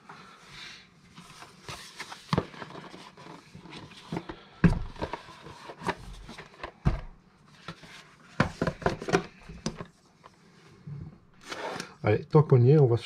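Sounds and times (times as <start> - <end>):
boxes clicking and knocking: 8.4 - 9.9.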